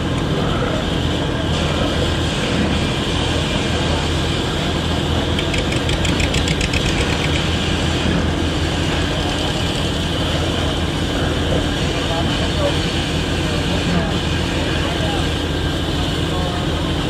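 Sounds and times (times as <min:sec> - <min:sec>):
boat engine droning: 0:00.0 - 0:17.0
rapid ticking clatter: 0:05.2 - 0:07.8.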